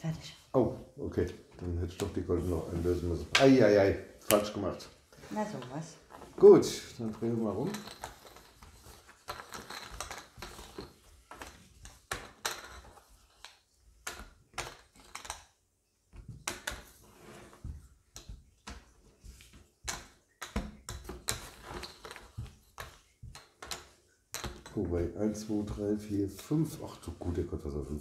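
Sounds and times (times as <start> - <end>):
game tokens clicking on wooden table: 7.0 - 24.8.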